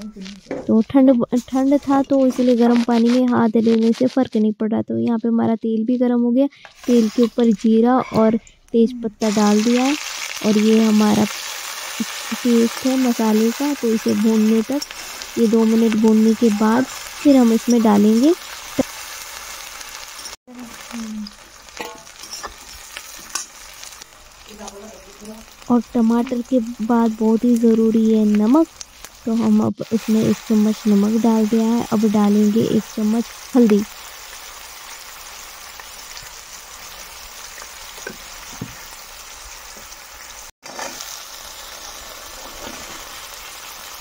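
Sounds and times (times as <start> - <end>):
food sizzling in hot oil: 0.0 - 4.4, 5.6 - 8.0, 9.2 - 44.0
spatula scraping and tapping wok: 21.7 - 23.8, 37.5 - 38.9, 40.6 - 41.1, 42.4 - 43.1.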